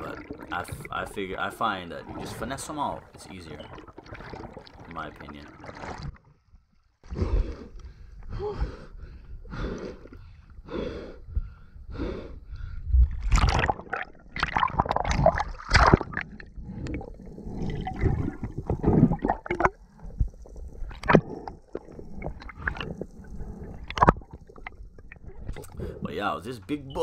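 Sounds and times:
underwater bubbling and gurgling: 0:00.0 - 0:11.1, 0:11.8 - 0:26.1
person breathing: 0:07.1 - 0:13.0, 0:25.6 - 0:26.1
underwater clicks: 0:17.8 - 0:25.9.

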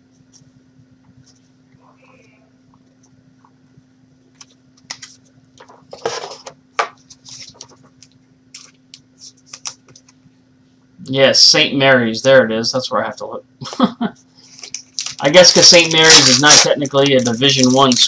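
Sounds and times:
cards clicking and rustling: 0:07.1 - 0:10.2, 0:14.5 - 0:18.0.

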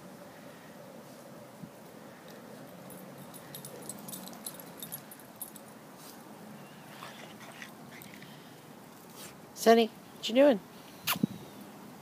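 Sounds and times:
dog collar tags jingling: 0:02.7 - 0:05.8.

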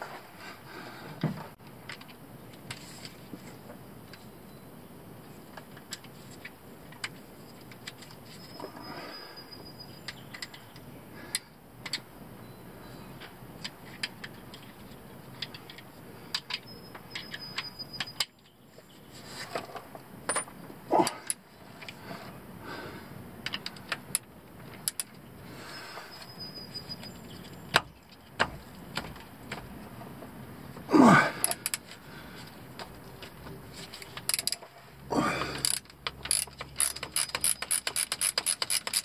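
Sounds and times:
socket wrench and tools clicking: 0:23.5 - 0:25.2, 0:34.2 - 0:34.7, 0:35.5 - 0:39.0.

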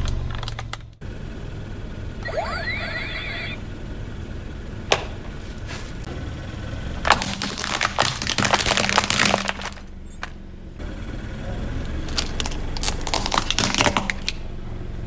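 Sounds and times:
plastic toys cracking under tyre: 0:00.0 - 0:01.0, 0:07.0 - 0:10.3, 0:12.0 - 0:14.5.

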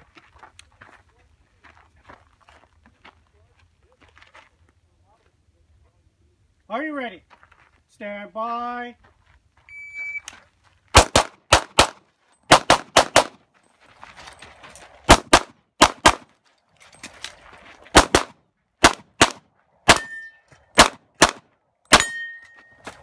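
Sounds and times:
shot timer beep: 0:09.7 - 0:10.3
rapid pistol fire: 0:11.0 - 0:13.4, 0:15.1 - 0:16.2, 0:18.0 - 0:20.1, 0:20.8 - 0:22.0
metallic ring: 0:19.9 - 0:20.6, 0:21.9 - 0:23.0.

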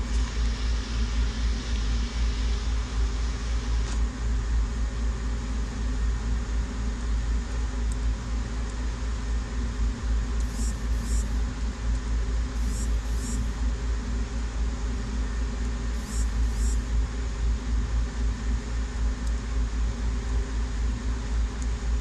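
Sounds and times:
machinery humming: 0:00.0 - 0:22.0.

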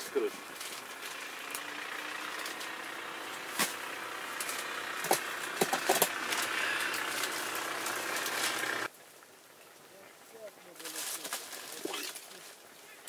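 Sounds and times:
engine drone: 0:00.0 - 0:08.9
sharp clicks and knocks: 0:04.4 - 0:06.5.

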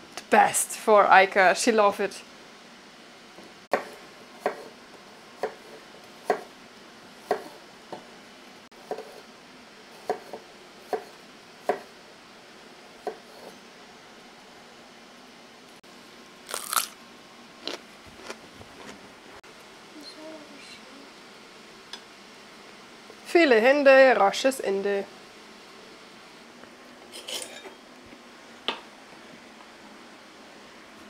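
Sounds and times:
knife chopping vegetables on board: 0:03.7 - 0:04.8, 0:05.4 - 0:06.6, 0:07.2 - 0:08.1, 0:08.8 - 0:09.3, 0:10.0 - 0:12.0, 0:13.0 - 0:13.5.

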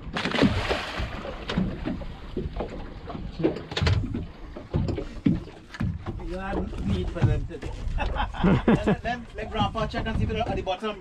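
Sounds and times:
water sloshing against hull: 0:00.0 - 0:11.0.

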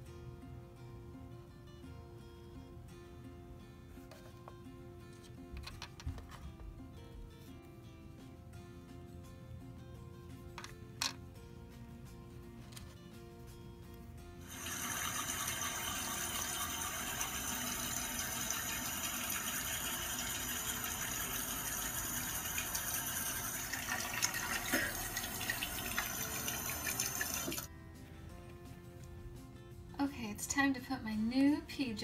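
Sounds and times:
tap water running into sink: 0:14.5 - 0:27.7.

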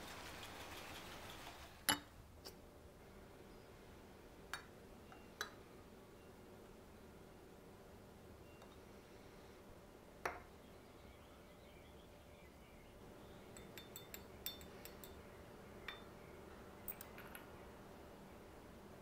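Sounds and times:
stirrer clinking against glass: 0:13.5 - 0:15.2.

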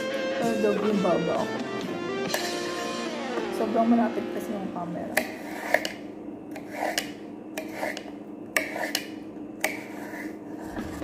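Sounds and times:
knife slicing cucumber: 0:05.2 - 0:10.3.

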